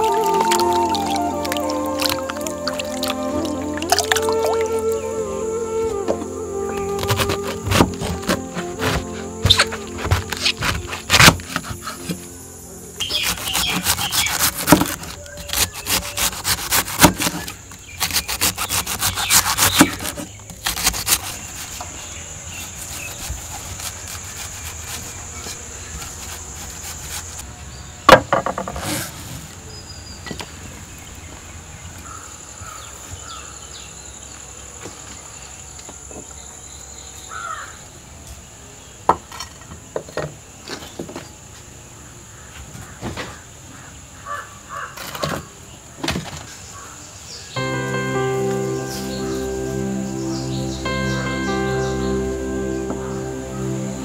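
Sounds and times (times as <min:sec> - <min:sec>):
high insect drone: 0:00.0 - 0:20.0.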